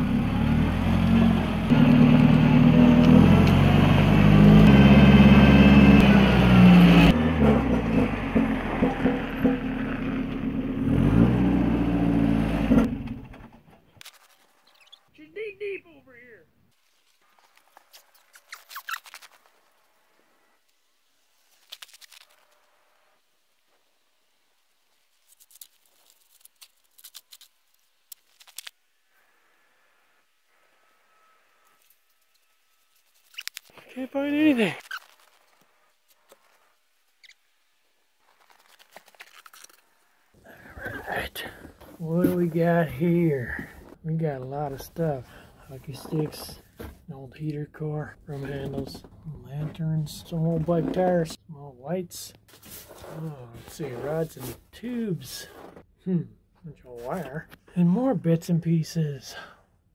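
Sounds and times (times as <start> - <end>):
forklift engine running: 0.0 - 13.8
footsteps crunching in snow: 52.5 - 54.7, 55.4 - 55.8.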